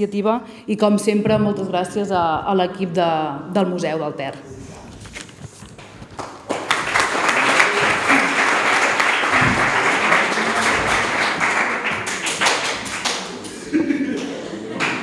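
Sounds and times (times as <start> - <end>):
audience applauding: 5.8 - 15.0.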